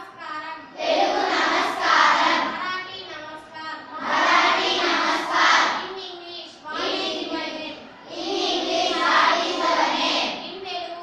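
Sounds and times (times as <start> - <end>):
girls chanting in unison: 0.6 - 2.9, 3.8 - 6.0, 6.6 - 10.6.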